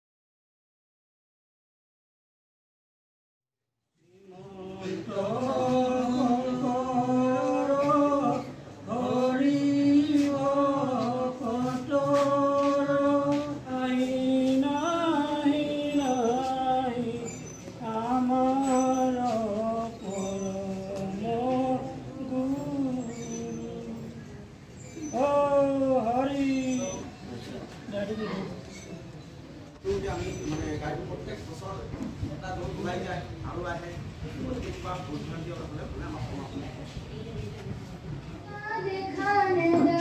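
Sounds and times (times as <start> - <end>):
group singing a devotional chant: 4.0 - 27.1.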